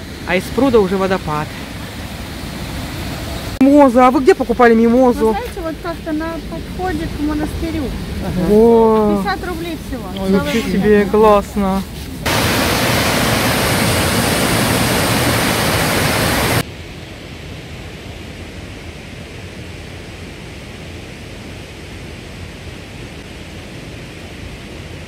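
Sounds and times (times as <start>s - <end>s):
waterfall rushing: 0.0s - 16.7s
faint steady hiss: 0.0s - 25.0s.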